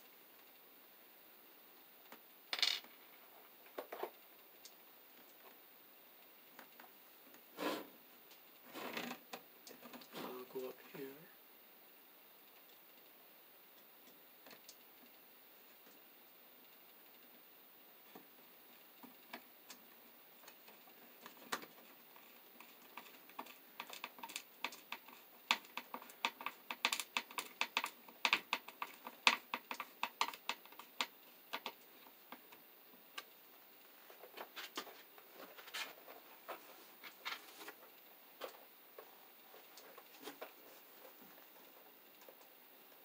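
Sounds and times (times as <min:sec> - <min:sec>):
plastic conduit clicking and rattling: 0:20.6 - 0:31.8.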